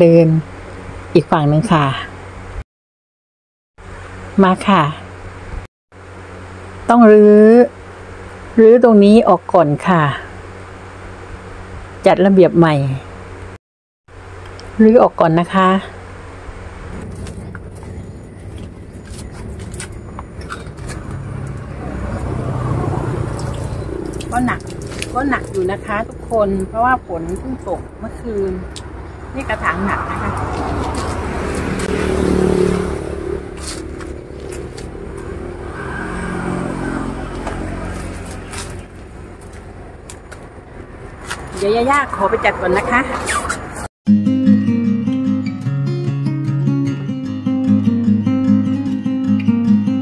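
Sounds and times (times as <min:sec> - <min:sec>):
leaves rustling: 0:33.5 - 0:35.3.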